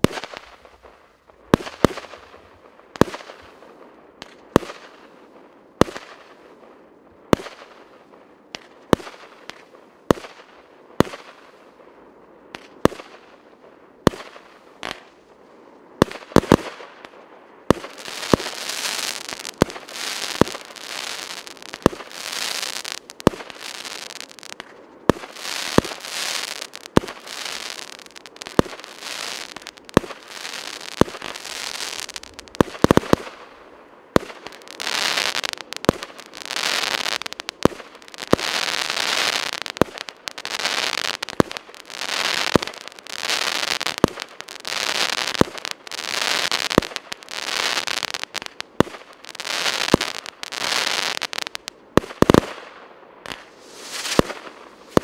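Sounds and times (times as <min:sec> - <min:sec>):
dense fireworks crackle: 0:00.0 - 0:06.6, 0:07.3 - 0:55.0
fireworks bangs: 0:16.0 - 0:55.0.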